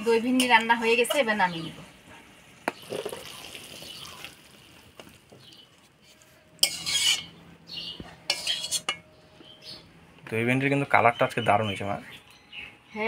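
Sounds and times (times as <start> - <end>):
metal utensil scraping a pot: 6.0 - 7.4, 8.2 - 9.1.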